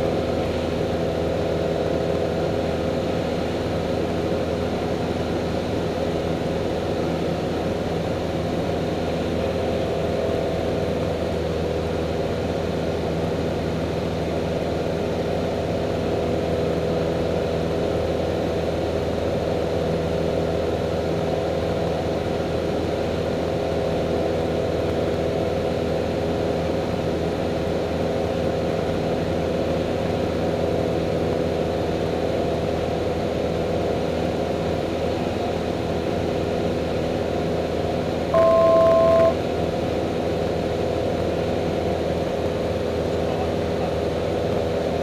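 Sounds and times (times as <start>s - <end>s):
light aircraft engine drone: 0.0s - 45.0s
two-note electronic beep: 38.4s - 39.4s.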